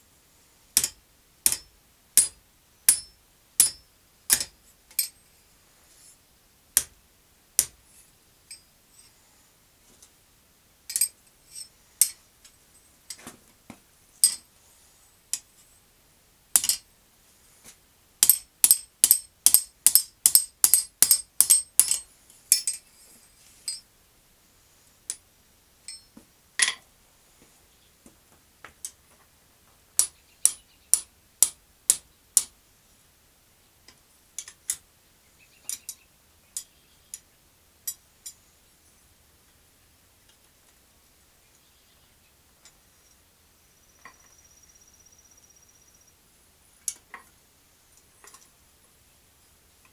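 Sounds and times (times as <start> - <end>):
hammer striking steel on anvil: 0.8 - 5.2, 14.2 - 14.4, 18.2 - 22.8.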